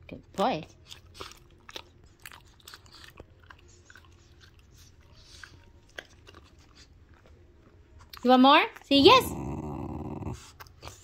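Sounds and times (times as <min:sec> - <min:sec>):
dog chewing and licking: 0:00.6 - 0:08.9.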